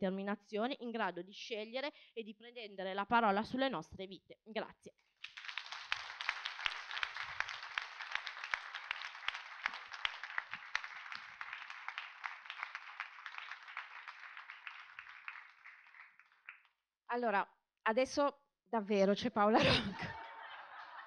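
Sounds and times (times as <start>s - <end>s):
audience applauding: 5.2s - 16.7s.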